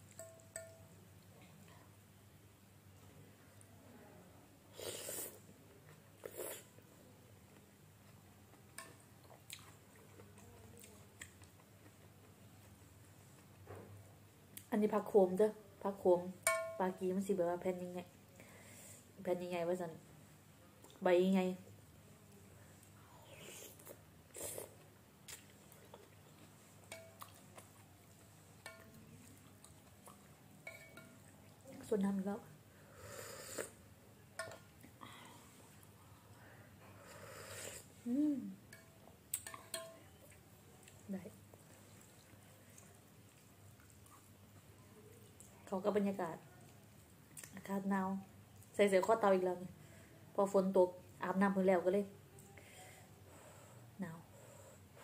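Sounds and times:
cutlery clinking on glass bowl: 0.1 - 0.9, 16.4 - 16.8, 30.6 - 31.2, 38.7 - 40.2
person slurping noodle soup: 4.8 - 5.4, 6.2 - 6.7, 23.3 - 24.8, 33.0 - 33.8, 37.2 - 38.0.

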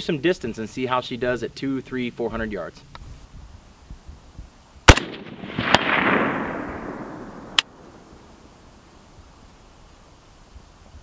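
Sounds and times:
rifle shot with long echo: 4.9 - 8.9.

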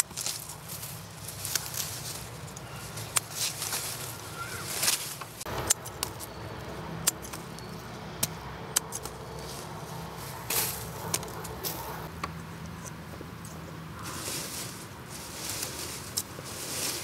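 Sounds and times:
vines rustling: 0.0 - 7.8, 9.0 - 12.1, 13.3 - 17.0
pruning shears snipping: 1.3 - 14.5.

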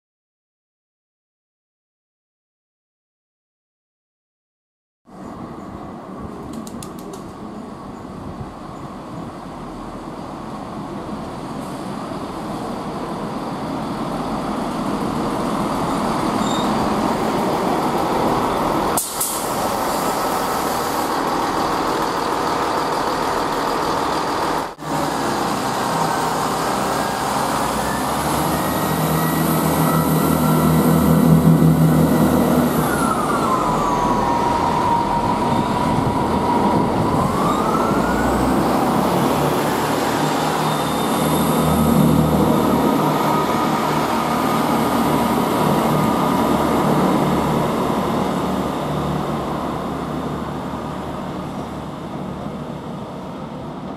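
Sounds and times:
train engine drone: 5.1 - 53.9
train wheel noise: 8.4 - 37.5
whining tone: 26.9 - 38.4.

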